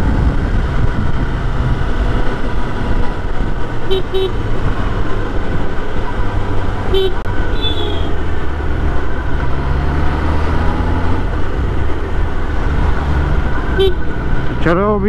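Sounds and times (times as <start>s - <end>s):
short horn beep: 6.9s - 8.2s.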